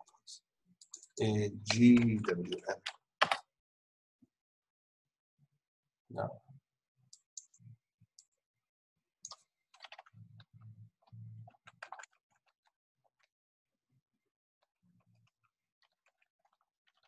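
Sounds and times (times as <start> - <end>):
computer keyboard typing: 0.8 - 3.4, 9.3 - 10.1, 11.5 - 12.2.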